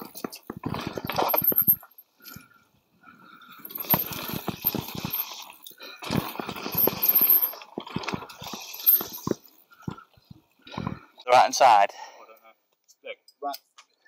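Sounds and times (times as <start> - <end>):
bike tyres on dirt: 3.8 - 10.0
bike rattling and knocking: 6.0 - 10.0.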